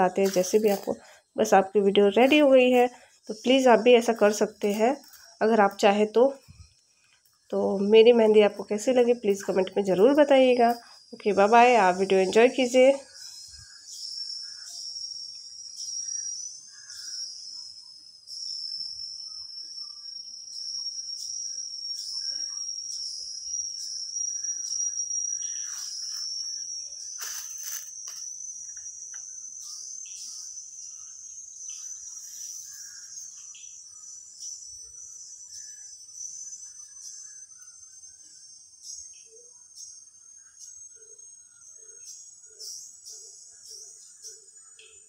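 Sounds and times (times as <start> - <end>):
crickets trilling: 0.0 - 45.0
faint rustles: 27.1 - 28.8.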